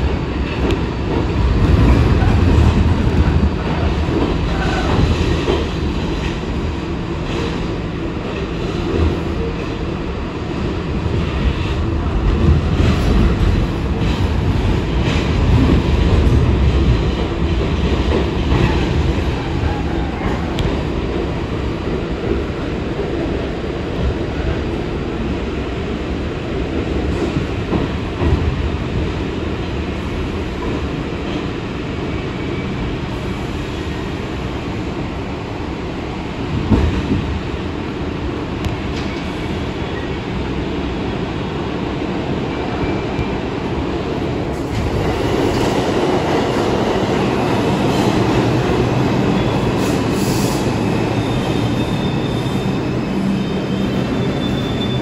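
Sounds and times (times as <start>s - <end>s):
subway train wheels rumbling: 0.0s - 55.0s
train jolt: 10.9s - 25.9s, 26.6s - 31.6s, 36.4s - 40.5s.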